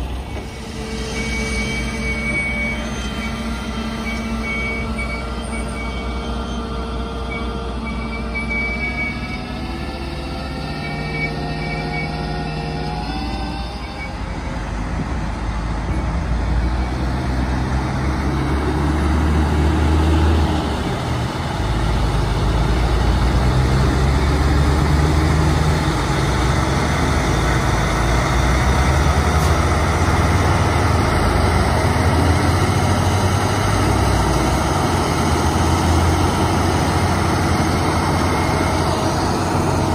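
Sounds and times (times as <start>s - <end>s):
tractor engine working hard: 0.0s - 39.9s
truck unloading silage: 0.0s - 39.9s.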